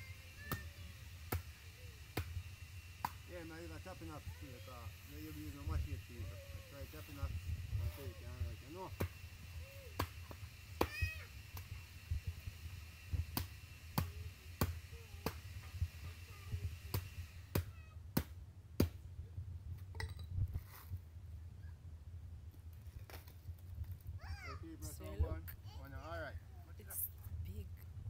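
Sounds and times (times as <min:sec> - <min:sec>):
hatchet chopping coconut husk: 0:00.4 - 0:06.1, 0:07.9 - 0:11.8, 0:13.2 - 0:16.3, 0:16.9 - 0:19.0.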